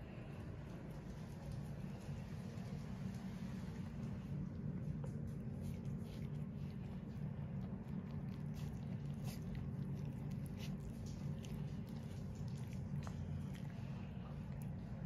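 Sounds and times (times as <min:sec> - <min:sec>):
cat licking fur: 0:00.8 - 0:15.0.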